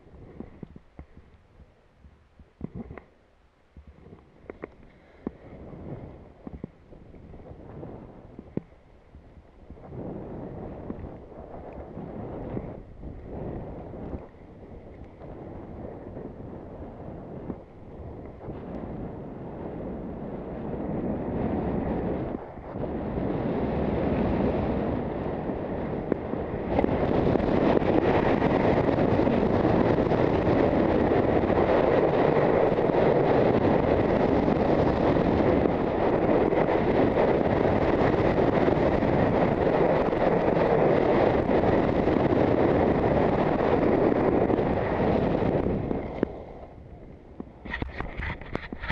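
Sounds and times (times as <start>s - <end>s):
wind rushing over microphone: 0.0s - 48.9s.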